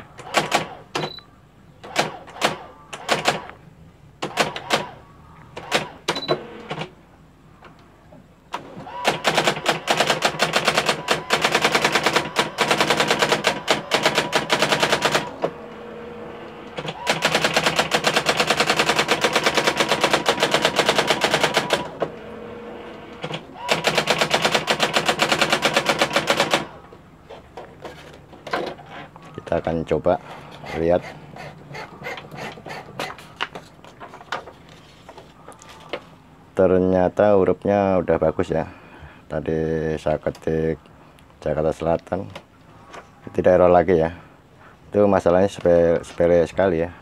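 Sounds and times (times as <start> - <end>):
electronic typewriter printing: 0.0 - 1.2, 1.8 - 3.6, 4.2 - 5.0, 5.6 - 7.0, 8.6 - 22.3, 23.0 - 26.8
typewriter motor hum: 1.8 - 3.6, 4.2 - 5.0, 5.6 - 6.9, 8.6 - 26.8.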